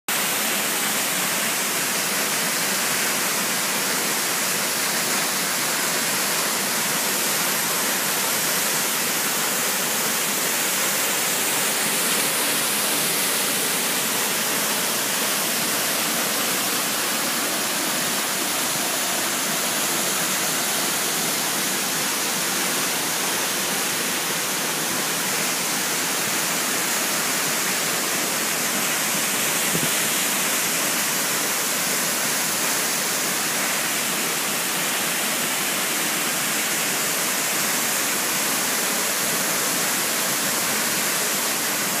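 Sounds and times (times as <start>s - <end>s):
waterfall rushing: 0.1s - 42.0s.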